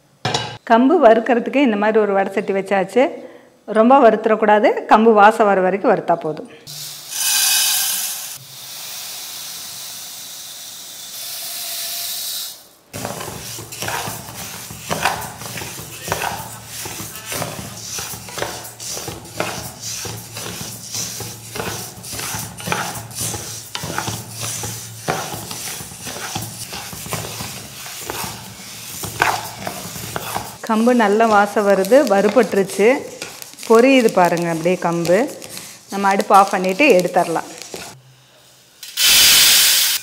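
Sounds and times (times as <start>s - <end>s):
wooden spatula scraping grains: 6.8s - 8.2s, 13.0s - 38.0s
grains poured into a pan: 6.8s - 9.1s.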